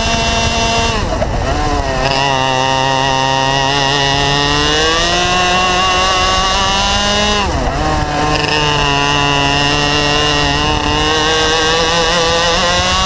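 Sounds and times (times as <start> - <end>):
two-stroke kart engine revving: 0.0 - 13.0.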